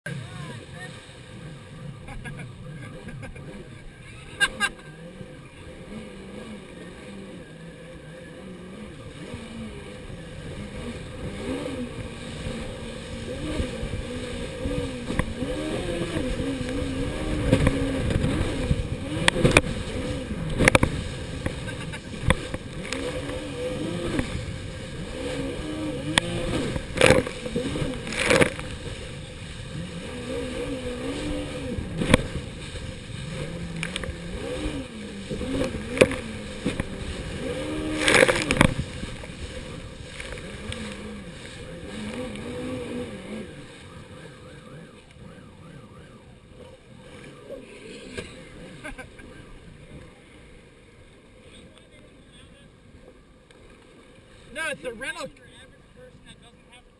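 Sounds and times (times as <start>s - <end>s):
jet ski engine running: 0.1s - 56.9s
hull slapping waves: 7.9s - 45.2s.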